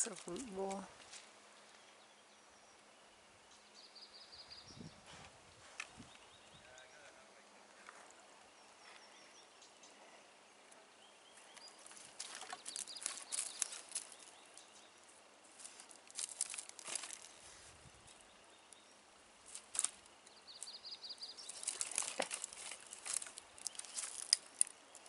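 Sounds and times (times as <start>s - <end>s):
footsteps crunching on twigs: 11.7s - 14.8s, 15.4s - 18.2s, 19.4s - 20.8s, 21.4s - 25.0s.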